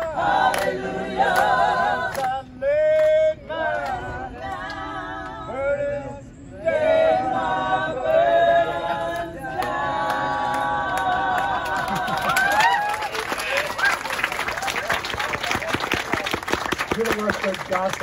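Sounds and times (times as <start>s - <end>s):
choir singing a cappella: 0.0s - 12.4s.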